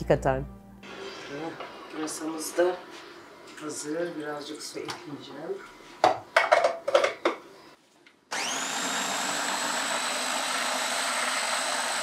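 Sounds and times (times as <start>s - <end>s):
stick blender whining: 0.8s - 3.9s, 8.3s - 12.0s.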